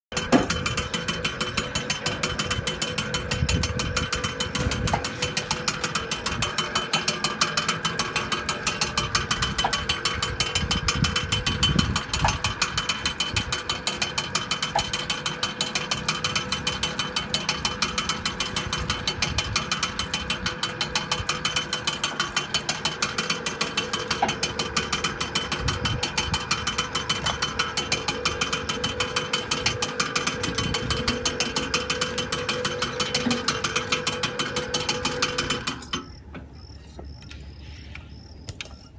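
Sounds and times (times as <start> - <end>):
electric motor humming: 0.1 - 38.9
pulley belt clicking: 0.1 - 38.9.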